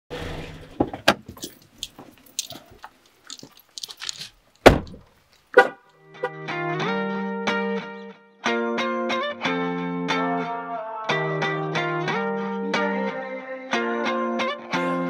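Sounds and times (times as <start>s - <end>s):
light jingling and clicking: 1.4s - 4.6s.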